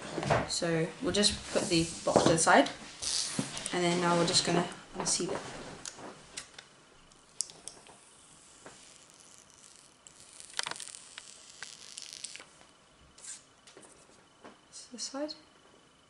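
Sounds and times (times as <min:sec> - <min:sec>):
plastic film crinkling and rustling: 0:07.8 - 0:12.5.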